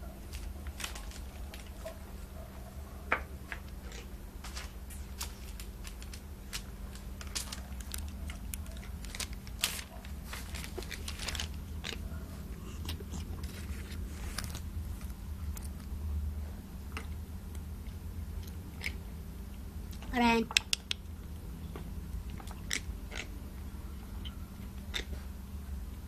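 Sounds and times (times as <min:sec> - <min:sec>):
steady low hum: 0:00.0 - 0:26.0
cat crunching food: 0:00.3 - 0:02.0, 0:03.4 - 0:16.0, 0:16.9 - 0:19.1, 0:22.2 - 0:23.6, 0:24.6 - 0:25.2.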